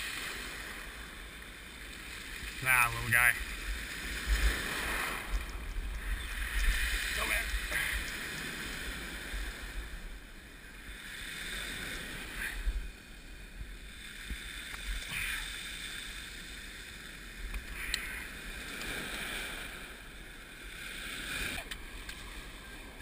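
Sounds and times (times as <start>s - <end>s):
surf washing onto rocky shore: 1.9s - 10.1s
wind rumbling on microphone: 2.4s - 15.5s.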